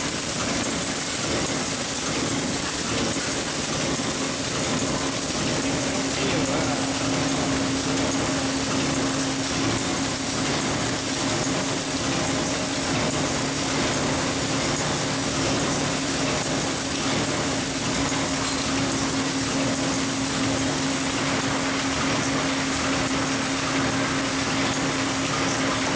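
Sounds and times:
machine whirring: 0:00.0 - 0:25.9.

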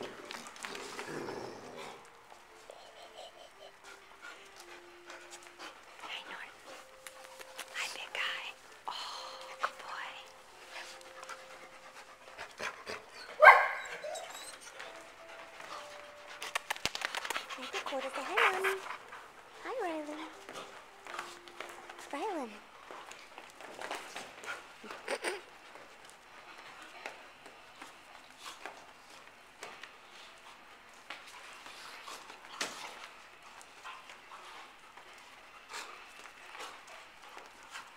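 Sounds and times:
dogs playing: 0:00.0 - 0:37.9
paws scuffing on floor: 0:03.8 - 0:37.9
dog barking loudly: 0:13.4 - 0:13.9.

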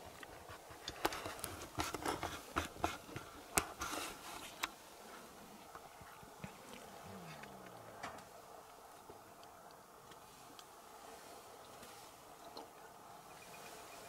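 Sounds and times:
light handling clicks and scrapes: 0:00.2 - 0:04.8.

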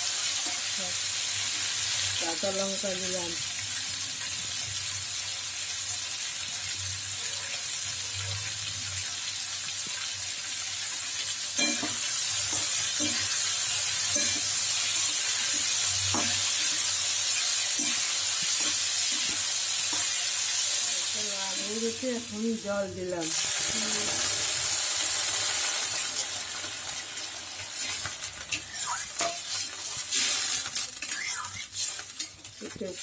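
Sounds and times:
vegetables sizzling in oil: 0:00.0 - 0:33.0
spatula scraping a wok: 0:11.6 - 0:20.9, 0:27.6 - 0:33.0.

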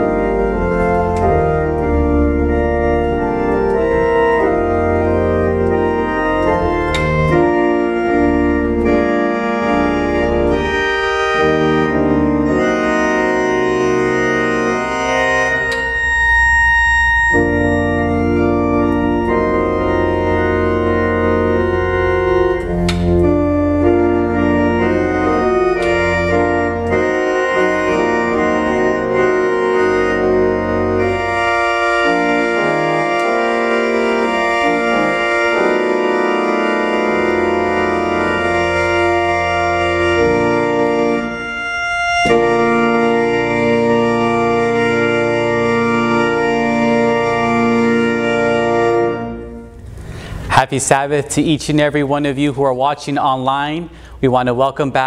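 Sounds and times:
organ playing sustained chords: 0:00.0 - 0:55.0.

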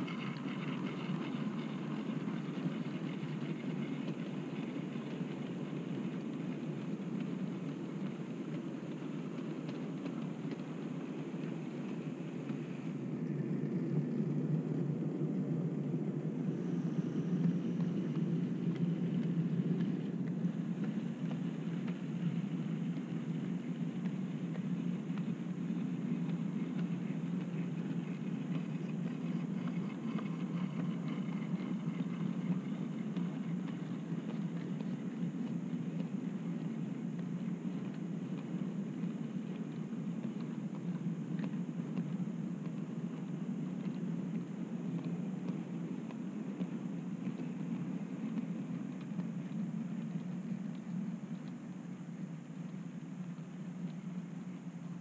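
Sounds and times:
model train wagons rumbling: 0:00.0 - 0:07.2
wheels clicking on track: 0:00.0 - 0:55.0.

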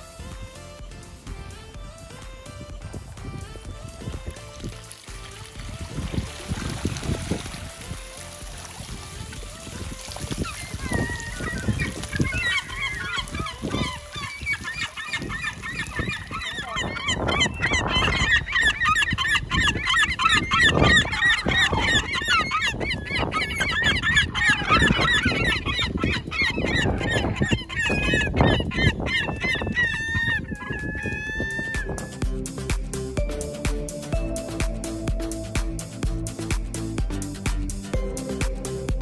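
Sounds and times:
wings beating: 0:01.3 - 0:39.0
gulls calling: 0:01.5 - 0:39.0.

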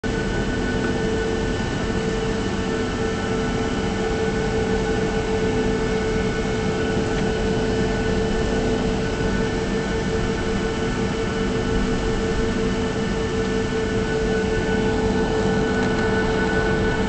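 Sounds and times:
jet engines running: 0:00.0 - 0:17.0.

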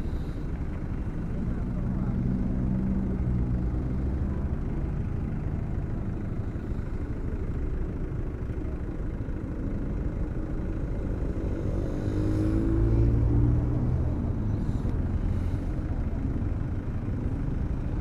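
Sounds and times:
road traffic rumble: 0:00.0 - 0:18.0
vehicle engine revving: 0:11.0 - 0:16.2.

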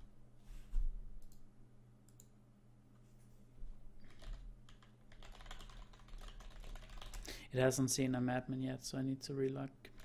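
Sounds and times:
keyboard typing: 0:04.0 - 0:07.3.

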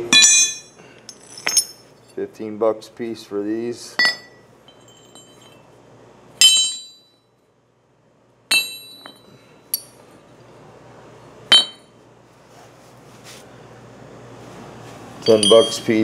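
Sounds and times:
metal chain hooks clinking: 0:00.2 - 0:01.9, 0:15.2 - 0:16.0.

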